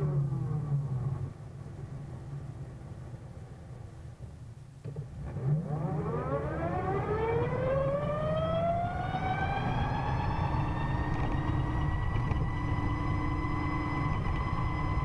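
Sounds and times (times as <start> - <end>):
electric scooter gear whine: 4.9 - 15.0
low rumble: 7.7 - 15.0.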